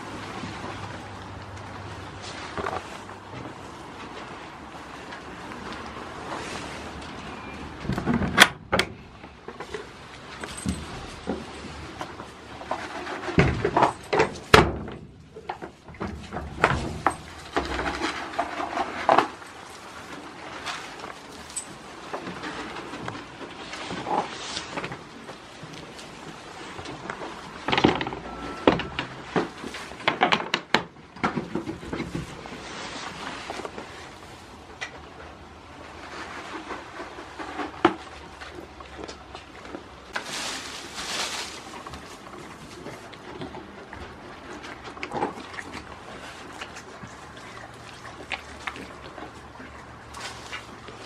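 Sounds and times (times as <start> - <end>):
goats rustling in straw: 16.8 - 27.0, 32.2 - 34.6, 40.1 - 44.6, 48.0 - 51.0.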